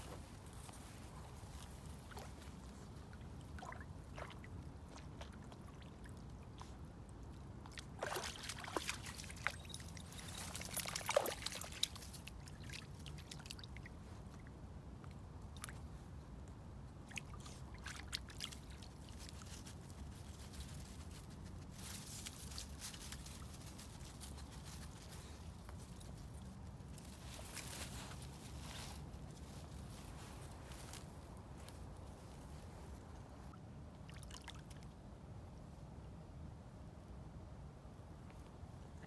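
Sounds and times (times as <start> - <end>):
dog paws splashing in water: 0.2 - 14.4, 17.0 - 30.2
rustling: 19.1 - 33.0.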